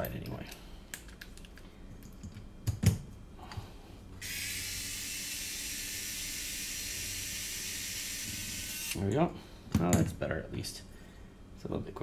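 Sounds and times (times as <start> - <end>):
electric screwdriver motor whirring: 4.2 - 9.0.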